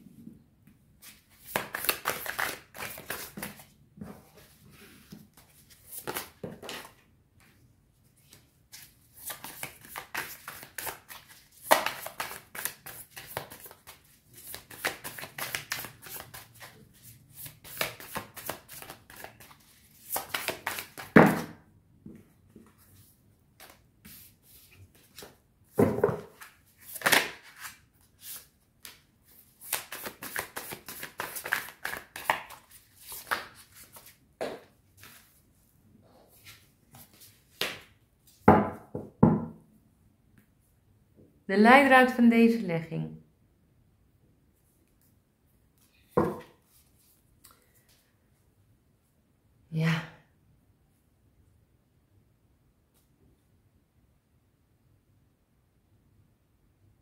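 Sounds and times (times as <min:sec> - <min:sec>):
cards being shuffled: 0:01.0 - 0:03.7, 0:05.4 - 0:07.0, 0:08.3 - 0:21.2, 0:26.1 - 0:29.0, 0:29.6 - 0:35.3.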